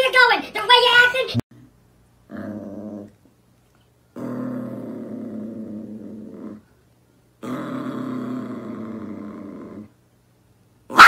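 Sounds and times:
small dog growling: 2.2s - 3.3s, 4.1s - 6.7s, 7.4s - 10.0s.

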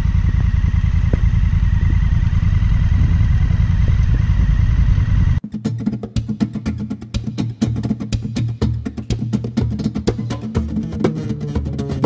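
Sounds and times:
faint high whine: 0.0s - 5.4s
motorcycle engine rumbling: 0.0s - 5.5s.

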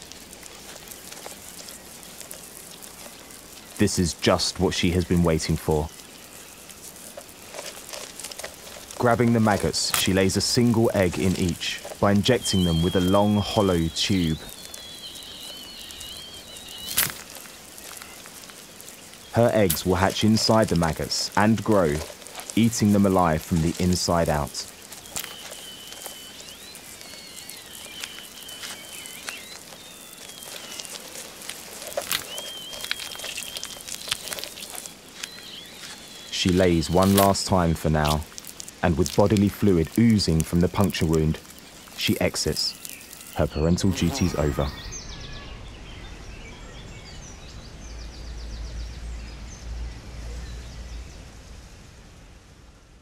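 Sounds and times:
sharp ticks and crackles: 0.0s - 44.7s
light hiss: 0.0s - 45.0s
high whistled bird calls: 8.8s - 38.3s, 39.0s - 49.6s.

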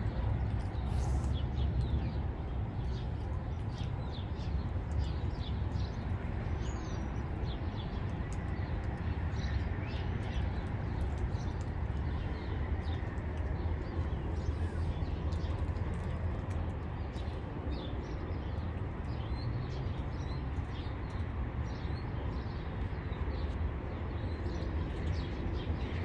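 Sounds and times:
steady low rumble: 0.0s - 19.4s
small birds chirping: 0.1s - 26.0s.

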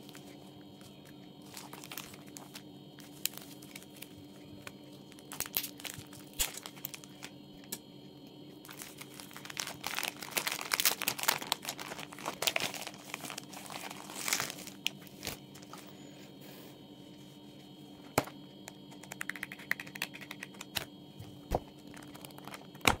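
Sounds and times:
plastic shrink wrap crinkling: 1.4s - 4.2s, 5.1s - 7.3s, 8.6s - 15.9s, 21.9s - 23.0s.

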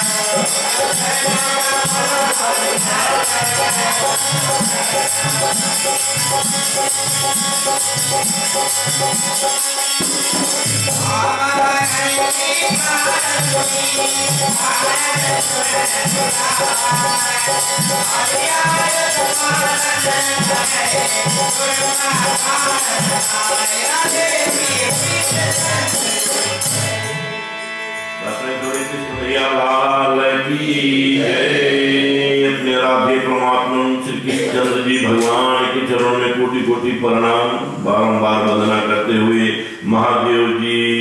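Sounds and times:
group singing devotional song: 0.0s - 27.0s, 28.2s - 41.0s
hand drum: 0.0s - 27.3s
jingling percussion: 0.0s - 29.8s
sustained accompaniment: 0.0s - 41.0s.

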